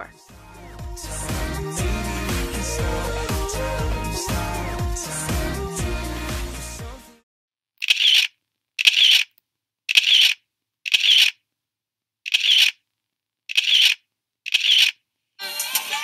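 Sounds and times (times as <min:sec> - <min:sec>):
camera shutter clicking: 0:07.8 - 0:09.3, 0:13.5 - 0:15.0.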